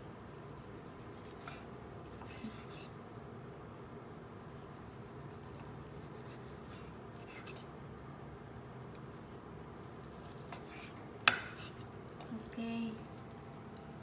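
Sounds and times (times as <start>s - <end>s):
knife slicing meat on cutting board: 0.1s - 3.0s, 4.4s - 7.6s, 9.0s - 11.9s.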